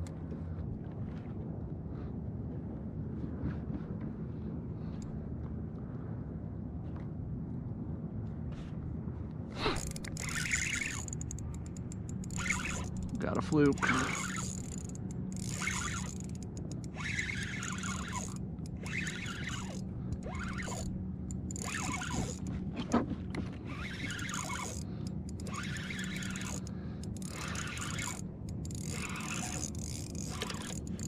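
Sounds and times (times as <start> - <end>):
fishing reel gears whirring: 9.6 - 22.9, 23.5 - 31.0.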